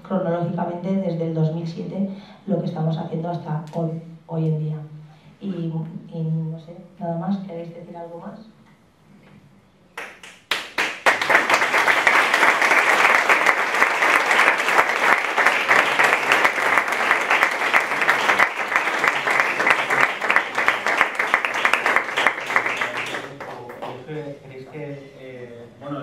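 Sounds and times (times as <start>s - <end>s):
crowd applauding: 10.0s - 24.0s.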